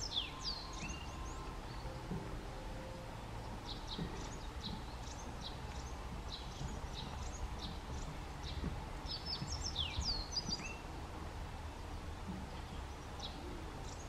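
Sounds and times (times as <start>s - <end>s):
bird singing high notes: 0.0s - 10.9s
low background rumble: 0.0s - 14.0s.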